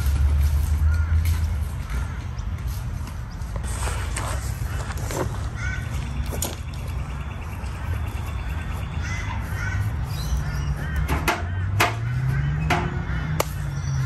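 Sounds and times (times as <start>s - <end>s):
bird calls: 0.6s - 14.0s.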